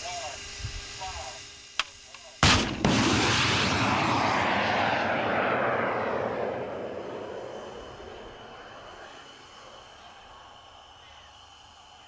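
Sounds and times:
rocket motor rushing hiss: 0:00.0 - 0:12.0
sharp bangs: 0:02.4 - 0:09.1.

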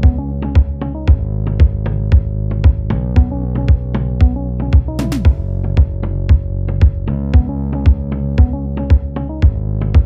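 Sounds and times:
drum machine beat: 0:00.0 - 0:10.0
held synth chords: 0:00.0 - 0:10.0.

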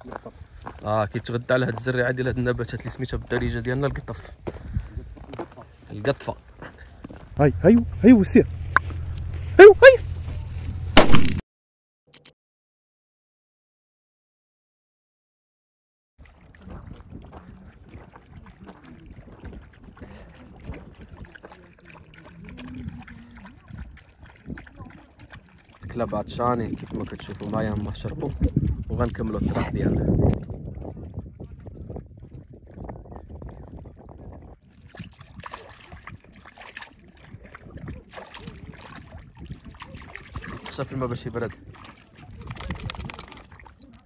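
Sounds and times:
wind on microphone: 0:00.0 - 0:05.7, 0:16.4 - 0:44.0
dogs lapping and splashing water: 0:00.0 - 0:08.0, 0:16.2 - 0:44.0.

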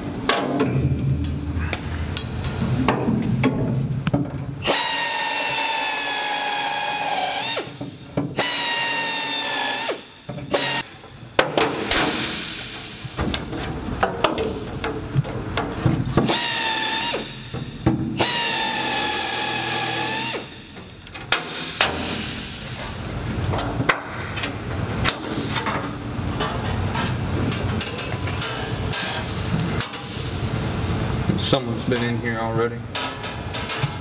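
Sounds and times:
handheld drill whining: 0:04.6 - 0:07.7, 0:08.4 - 0:10.9, 0:16.2 - 0:17.4, 0:18.2 - 0:20.5.

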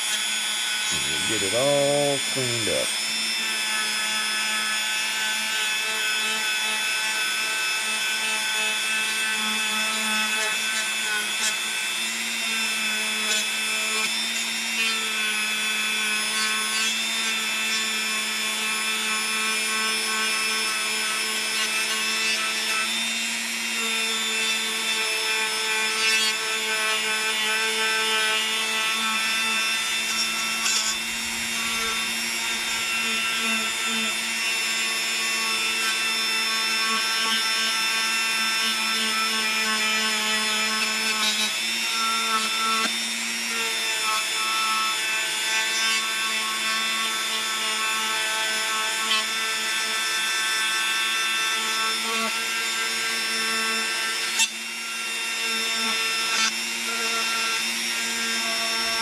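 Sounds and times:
rotary tool whining: 0:00.0 - 0:59.0
bit scratching metal: 0:29.4 - 0:34.7.

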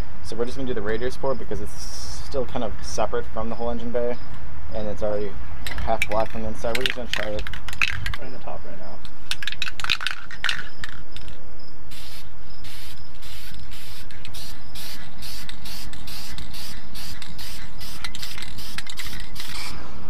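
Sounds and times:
spray can mixing ball rattling: 0:09.3 - 0:11.0, 0:11.9 - 0:19.7
short hissing spray bursts: 0:11.9 - 0:19.8.

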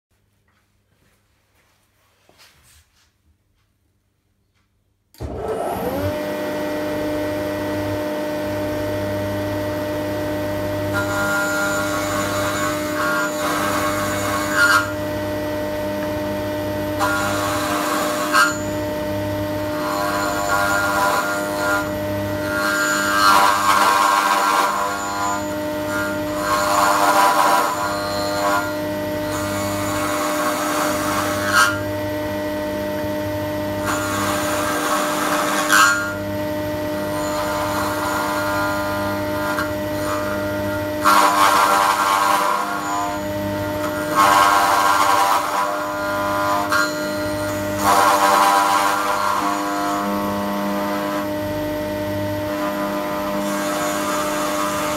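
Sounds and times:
mortiser humming: 0:05.2 - 0:54.9
bit cutting into wood: 0:16.0 - 0:18.9, 0:19.6 - 0:31.9, 0:33.0 - 0:36.3, 0:37.0 - 0:51.3.

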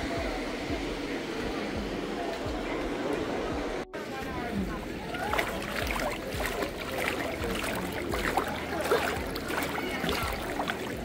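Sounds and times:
distant voices: 0:00.0 - 0:11.0
water splashing and trickling: 0:04.0 - 0:11.0.

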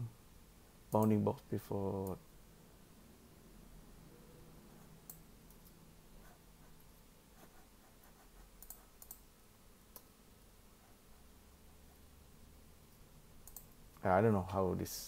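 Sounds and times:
mouse and keyboard clicks: 0:08.6 - 0:09.2.

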